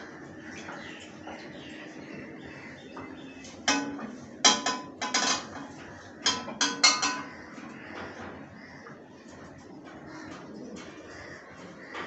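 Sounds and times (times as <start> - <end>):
metal bowl and plate clinking: 3.7 - 7.5.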